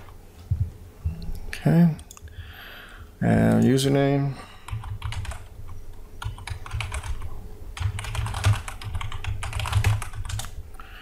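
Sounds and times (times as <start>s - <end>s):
computer keyboard typing: 4.6s - 10.6s.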